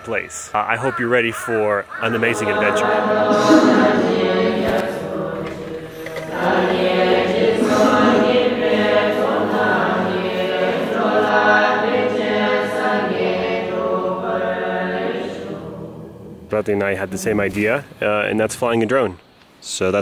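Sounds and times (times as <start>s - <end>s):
group of voices singing: 2.0s - 16.5s.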